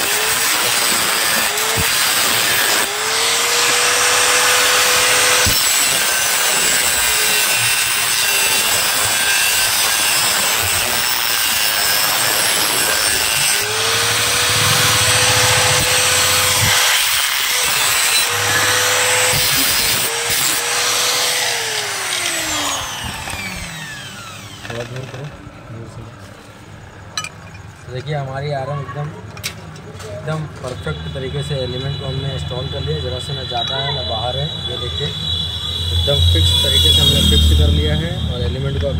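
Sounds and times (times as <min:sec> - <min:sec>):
angle grinder cutting metal: 0:00.0 - 0:25.3
grinder motor whine: 0:00.0 - 0:25.4.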